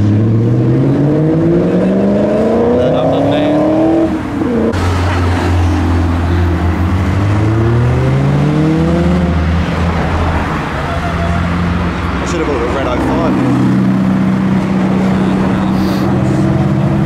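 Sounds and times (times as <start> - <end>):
car engine accelerating: 0.0 - 10.8
cars passing close by: 0.0 - 17.0.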